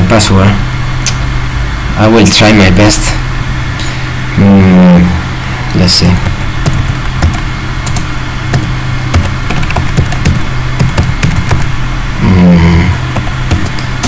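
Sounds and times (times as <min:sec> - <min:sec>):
steady low hum: 0:00.0 - 0:14.0
keyboard keys clicking: 0:06.2 - 0:11.7, 0:13.2 - 0:13.8.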